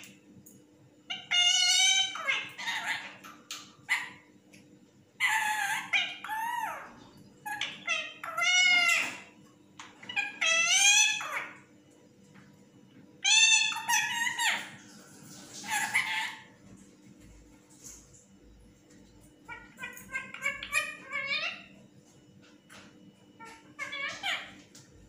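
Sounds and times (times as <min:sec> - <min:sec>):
parakeet calling: 0:01.1 - 0:04.3, 0:05.2 - 0:11.7, 0:13.2 - 0:16.6, 0:19.4 - 0:21.8, 0:23.4 - 0:24.7.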